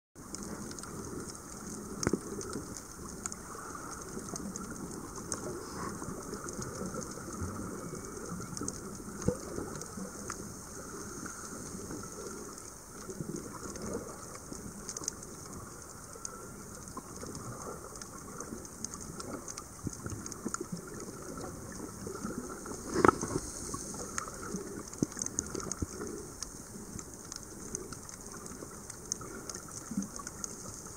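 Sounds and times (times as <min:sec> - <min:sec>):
small underwater clicks: 0:00.2 - 0:30.9
underwater crackling hiss: 0:00.2 - 0:30.9.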